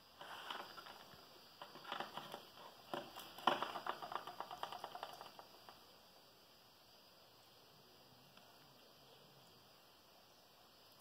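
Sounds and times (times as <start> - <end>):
animal crunching food from metal tray: 0.2 - 5.8.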